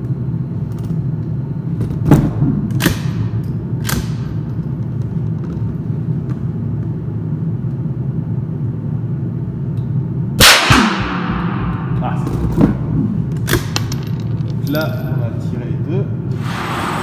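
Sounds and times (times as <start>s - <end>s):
low background noise: 0.0s - 16.4s
rifle shot with echo: 10.4s - 11.9s.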